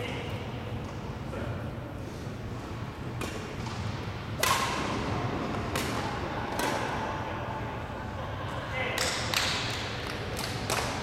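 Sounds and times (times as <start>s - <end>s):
rackets hitting shuttlecock: 3.1s - 7.0s, 9.0s - 11.0s.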